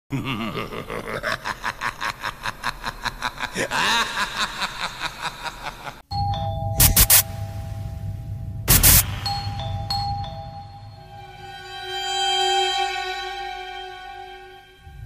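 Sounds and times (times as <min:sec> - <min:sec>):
person laughing: 0:00.1 - 0:06.0
low hum with steady tones: 0:06.2 - 0:11.3.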